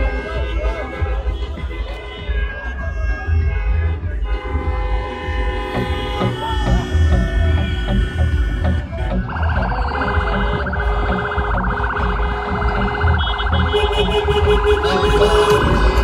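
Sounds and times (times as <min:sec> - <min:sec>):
low thumping music: 0:00.0 - 0:16.0
traffic: 0:00.0 - 0:16.0
steady horn-like tone: 0:03.4 - 0:16.0
warbling electronic siren: 0:08.9 - 0:16.0.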